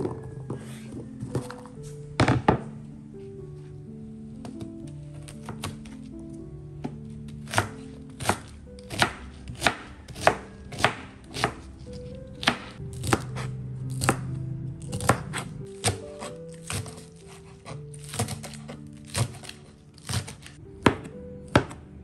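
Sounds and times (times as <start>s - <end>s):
soft background music: 0.0s - 22.0s
knife chopping on plastic board: 5.2s - 6.0s, 6.8s - 14.3s, 14.9s - 21.8s.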